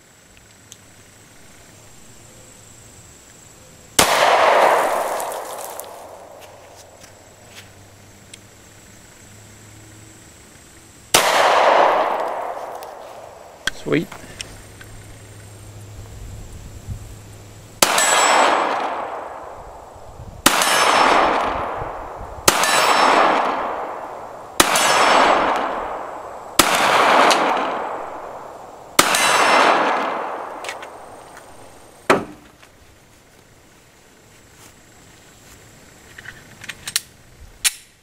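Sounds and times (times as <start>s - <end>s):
pistol shots with echo: 4.0s - 6.4s, 11.1s - 13.9s, 17.8s - 19.5s, 20.4s - 31.0s.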